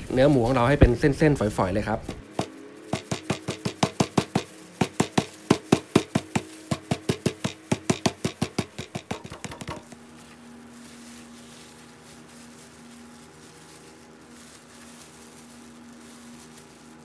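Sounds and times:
stone pestle pounding meat: 0:02.0 - 0:09.9.

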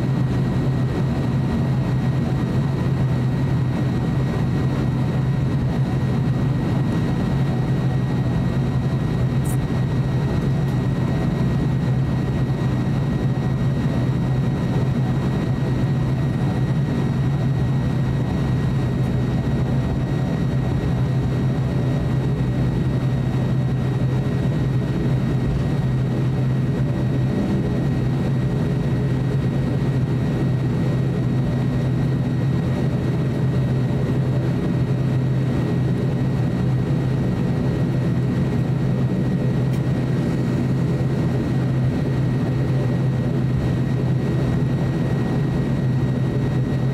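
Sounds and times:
high engine whine: 0:00.0 - 0:46.9
turboprop engines droning: 0:00.0 - 0:46.9.

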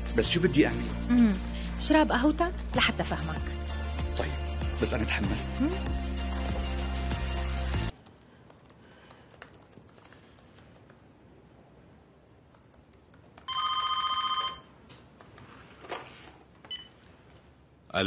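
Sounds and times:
electronic telephone ring: 0:13.5 - 0:14.8.

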